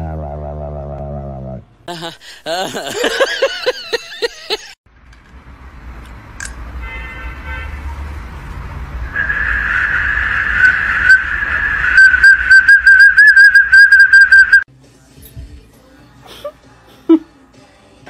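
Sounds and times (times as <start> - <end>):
shrill plastic whistle: 9.1 - 14.7.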